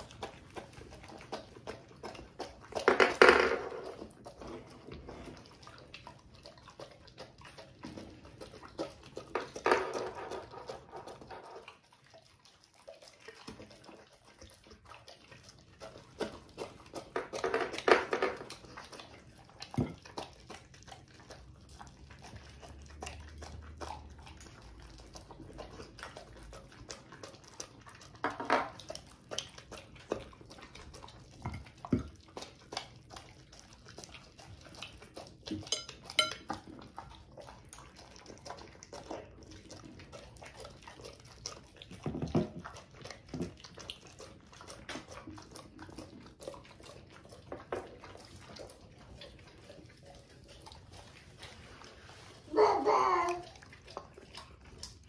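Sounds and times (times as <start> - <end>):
tongues knocking plates: 0.0 - 5.1, 7.9 - 11.8, 16.1 - 20.7, 35.0 - 37.1
dogs chewing and licking: 0.0 - 55.0.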